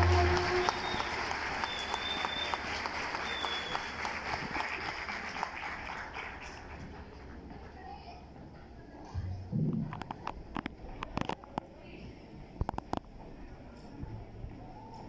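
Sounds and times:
audience applauding: 0.0s - 7.5s
short high whistles: 0.4s - 3.9s.

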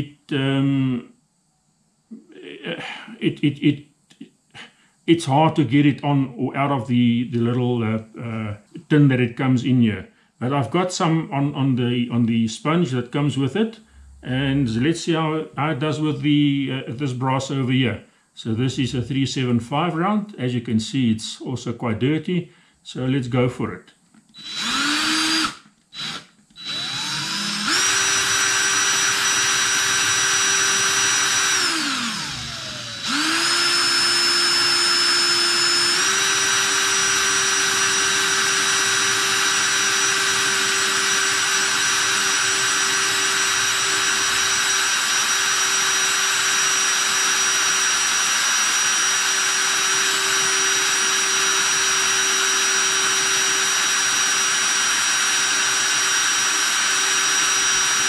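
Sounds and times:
drill trigger blips: 24.3s - 58.0s
drill motor whine: 24.4s - 58.0s.

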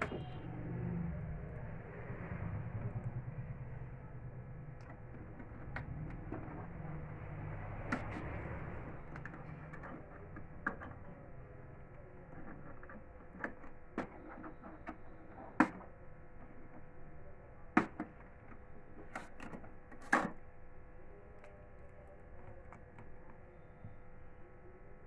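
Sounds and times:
plastic clicks and knocks: 12.3s - 15.9s, 19.0s - 20.4s.

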